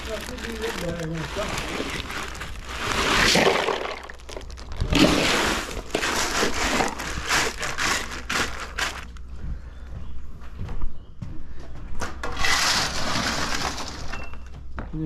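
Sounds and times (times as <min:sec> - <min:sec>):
ice shifting in a bag: 0:00.0 - 0:09.2, 0:12.4 - 0:14.4
plastic bag crinkling: 0:00.0 - 0:09.2.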